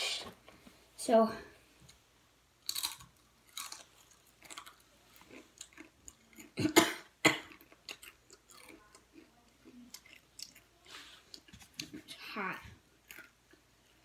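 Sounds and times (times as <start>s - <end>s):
person chewing crunchy chip: 2.6s - 6.6s, 7.4s - 11.5s.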